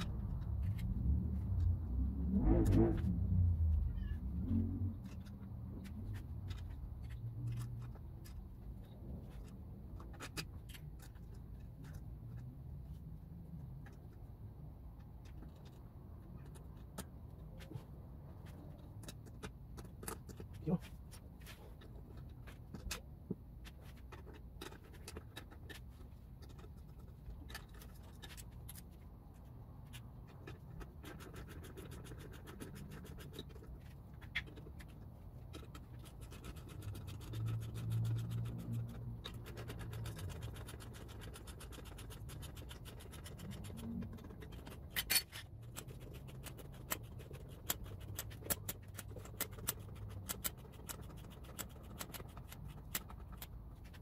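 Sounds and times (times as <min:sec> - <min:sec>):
low hum: 0:00.0 - 0:09.1.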